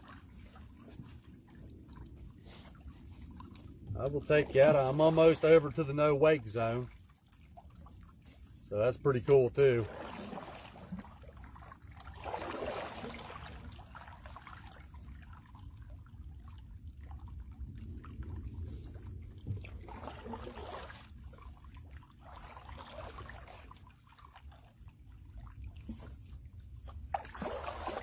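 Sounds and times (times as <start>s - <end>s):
water dripping from paddle: 0.0s - 4.9s, 6.8s - 8.7s.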